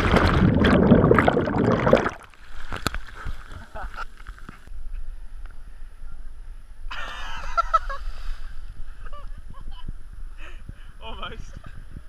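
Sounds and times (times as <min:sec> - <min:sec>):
person splashing into water: 0:00.0 - 0:03.4.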